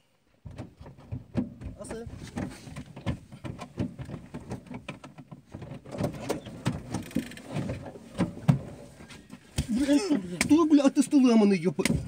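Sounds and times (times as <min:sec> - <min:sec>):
knocks and bumps: 0:00.3 - 0:10.8
clothing rustle: 0:05.5 - 0:10.3.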